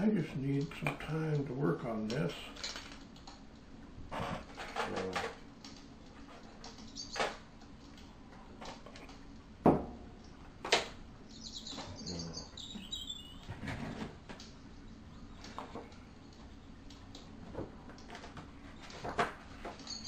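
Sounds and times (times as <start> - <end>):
faint high chirps: 11.3 - 13.5.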